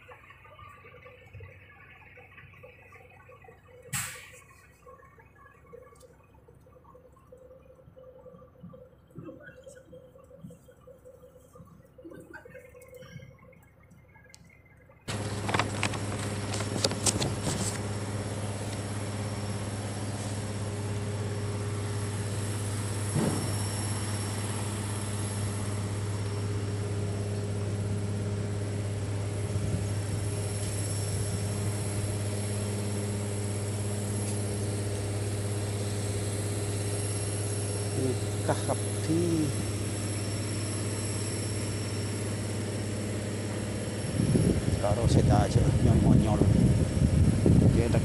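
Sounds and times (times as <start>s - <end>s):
low machine hum: 0.0s - 48.0s
sharp clicks and knocks: 15.1s - 17.8s.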